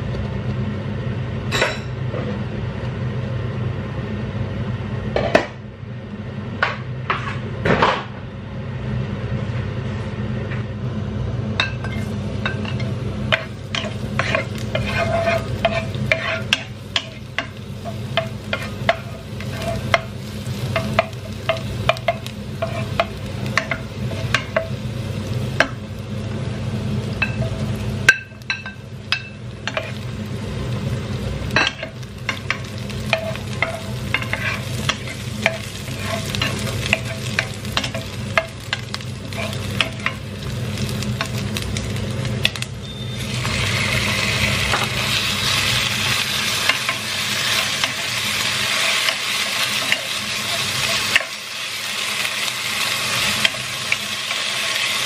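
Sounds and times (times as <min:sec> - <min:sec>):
steady low hum: 0:00.0 - 0:55.0
garlic frying in hot oil: 0:11.6 - 0:55.0
spatula scraping a pan: 0:11.9 - 0:20.1, 0:20.8 - 0:24.6, 0:31.6 - 0:38.5, 0:39.2 - 0:40.2.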